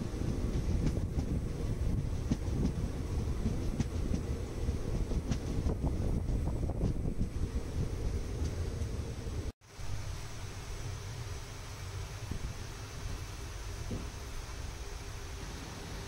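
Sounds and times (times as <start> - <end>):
rail clacks: 0.0 - 9.3
wind on microphone: 0.0 - 9.5
train wheels rumbling on rails: 0.0 - 16.0.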